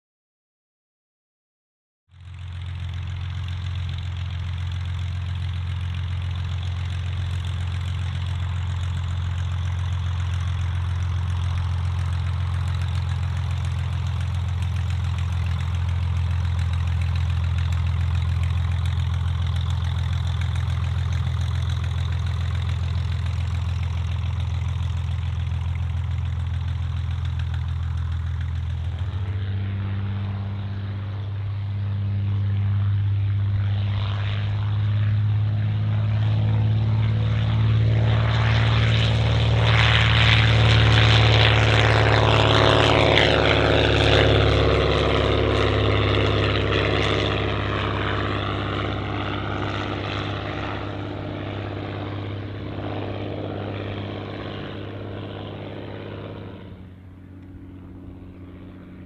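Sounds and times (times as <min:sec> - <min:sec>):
propeller aircraft engine running: 0:02.1 - 0:59.0.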